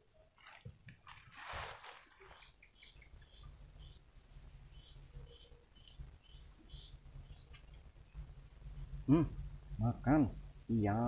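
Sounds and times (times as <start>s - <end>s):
insects trilling: 0.0s - 11.0s
short insect chirps: 0.0s - 11.0s
rustling: 0.2s - 2.7s.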